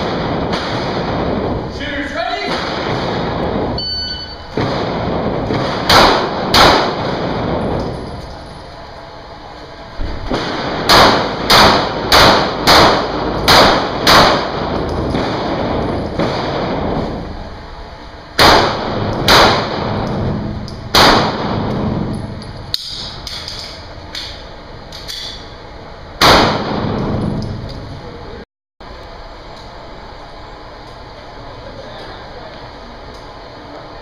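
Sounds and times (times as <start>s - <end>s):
pistol shots with echo: 4.5s - 7.6s, 10.3s - 17.0s, 18.4s - 22.1s, 26.2s - 27.2s.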